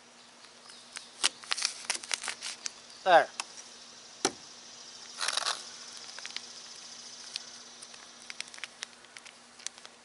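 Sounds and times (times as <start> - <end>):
insect buzz: 0.0 - 9.5
foil wrapper crinkling: 0.9 - 2.8, 5.1 - 10.0
package ticking and rustling: 1.0 - 2.8, 5.2 - 10.0.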